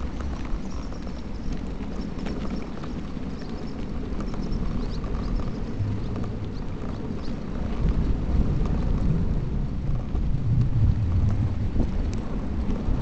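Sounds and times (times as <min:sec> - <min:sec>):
bike clicks and rattles: 0:00.0 - 0:13.0
wind and tyre rumble: 0:00.0 - 0:13.0.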